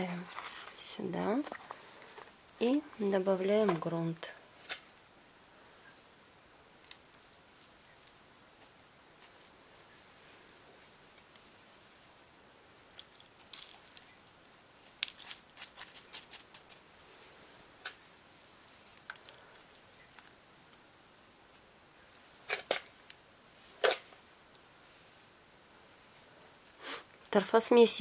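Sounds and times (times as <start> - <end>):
plastic cup crinkling: 12.9 - 16.9.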